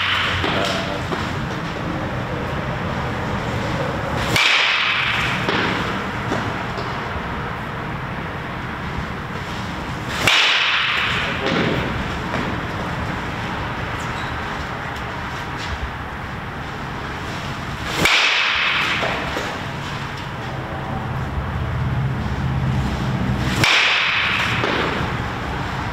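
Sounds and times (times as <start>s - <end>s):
baseball bat hitting ball: 0.0s - 1.6s, 4.2s - 7.1s, 9.9s - 13.6s, 17.8s - 20.5s, 23.4s - 25.8s
background noise: 0.0s - 25.9s.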